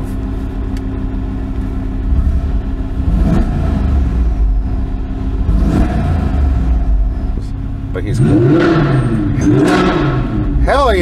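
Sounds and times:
engine revving in a tunnel: 2.0s - 7.4s, 8.0s - 11.0s.

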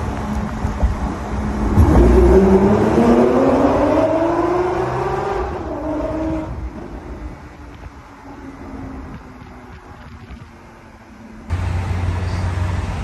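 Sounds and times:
car engine accelerating hard: 0.8s - 7.2s.

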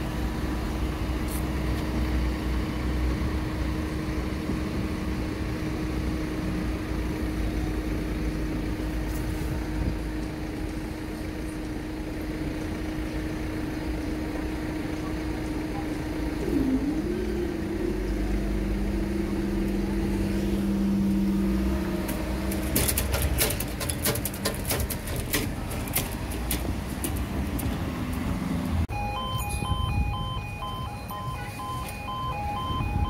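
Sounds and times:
machine engine running: 0.1s - 28.9s
pulsing two-tone warning alarm: 28.9s - 33.0s.

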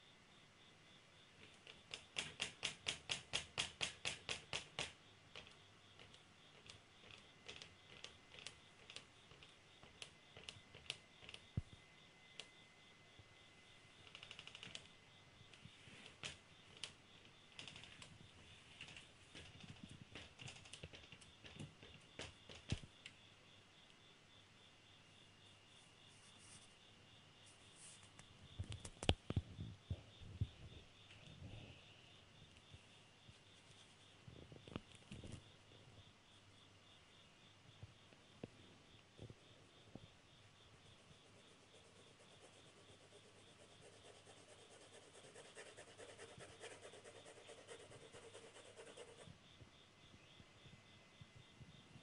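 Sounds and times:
pencil strokes on paper: 41.2s - 49.3s.

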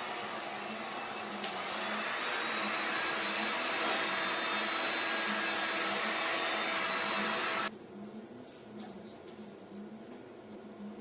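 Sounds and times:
heat gun whirring: 0.0s - 7.7s.

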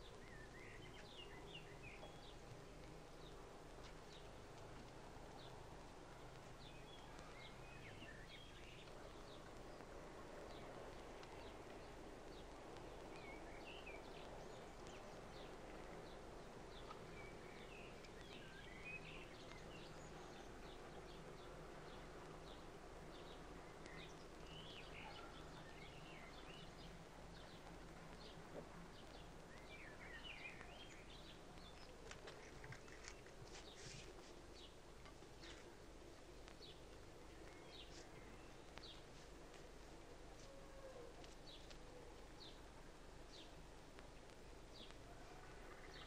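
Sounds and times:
old film soundtrack hiss and hum: 0.0s - 46.0s
faint bird chirps: 23.7s - 26.8s.

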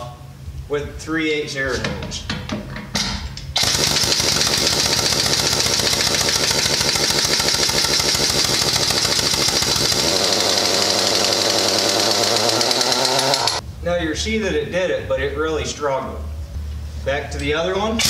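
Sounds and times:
air impact wrench hammering: 3.5s - 13.6s.

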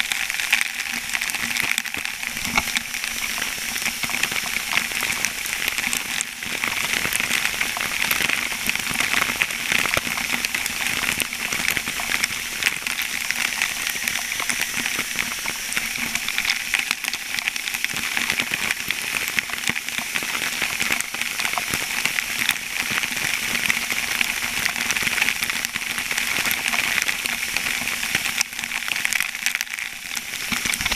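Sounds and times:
water spraying down: 0.0s - 24.2s.

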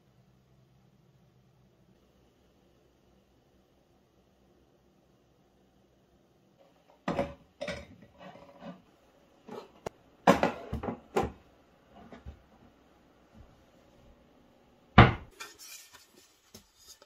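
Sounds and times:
ceramic bowls clinking: 7.1s - 8.7s.

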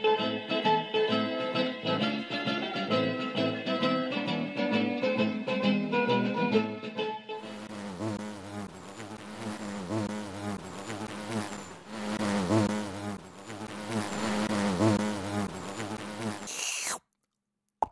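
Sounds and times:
bee buzzing: 7.4s - 17.0s.

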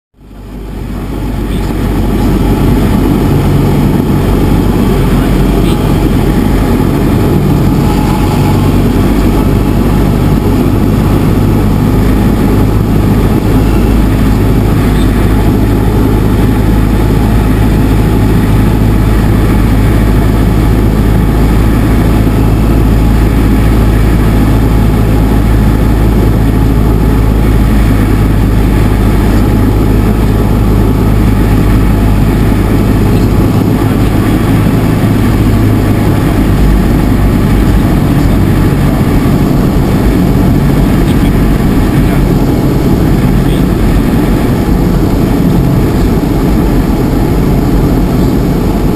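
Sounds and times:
propeller plane engine droning: 0.2s - 48.9s.

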